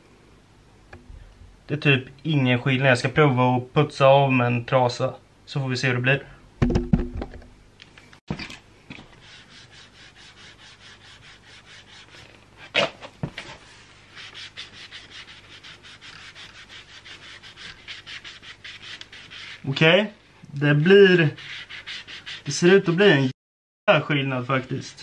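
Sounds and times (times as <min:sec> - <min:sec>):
cloth rubbing on metal: 0:09.0 - 0:12.4, 0:13.5 - 0:20.0, 0:20.9 - 0:23.3.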